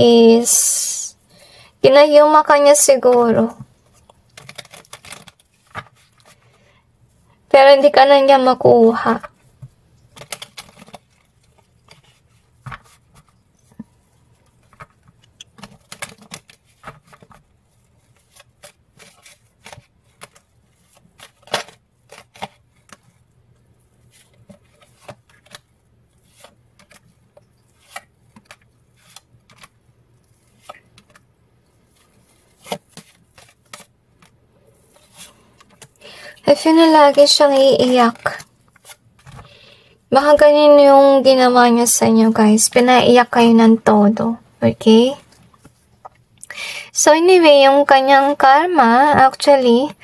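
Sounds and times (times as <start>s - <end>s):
cards being shuffled: 3.1s - 6.6s, 9.0s - 23.2s, 24.0s - 39.6s.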